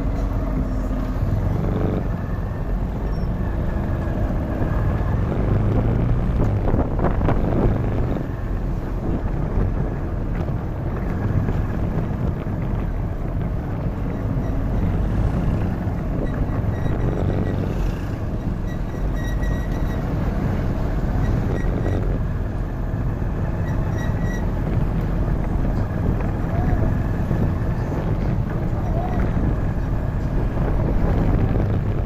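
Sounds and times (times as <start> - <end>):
motorcycle engine: 0.0 - 8.5, 13.6 - 24.3
road noise: 0.0 - 32.0
wind buffeting microphone: 0.0 - 32.0.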